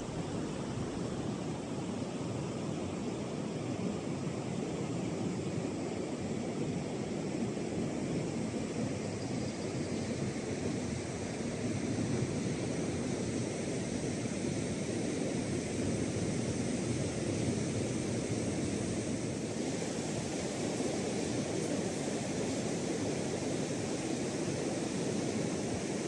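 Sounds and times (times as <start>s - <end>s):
surf breaking on a sandy beach: 10.3s - 26.0s.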